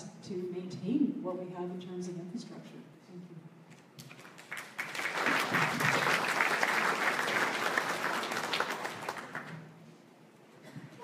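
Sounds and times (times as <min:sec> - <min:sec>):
audience applauding: 0:04.0 - 0:09.7.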